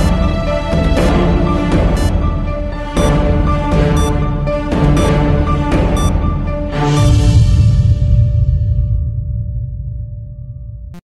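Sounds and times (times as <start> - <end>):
synth tones: 3.8 - 6.4.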